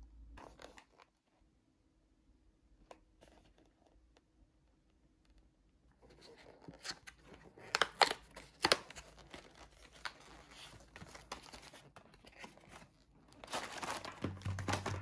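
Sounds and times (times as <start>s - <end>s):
card rustling: 6.0s - 15.0s.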